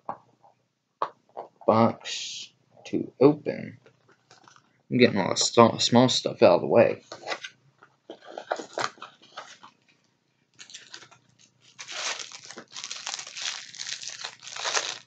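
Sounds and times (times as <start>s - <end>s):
handling clicks and rustles: 3.8s - 4.7s
packaging tearing and crinkling: 10.6s - 15.0s.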